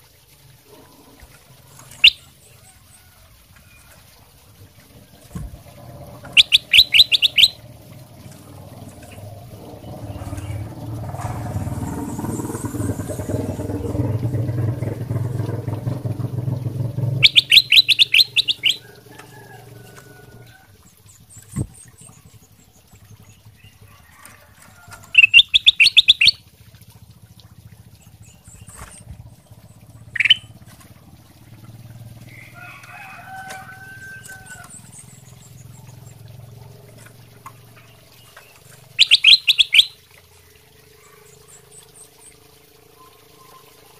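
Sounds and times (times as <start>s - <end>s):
bird chattering calls: 1.8s - 2.3s, 6.0s - 7.7s, 17.0s - 19.1s, 25.1s - 26.4s, 30.0s - 30.6s, 39.0s - 40.0s
low rumbling noise: 4.4s - 23.9s.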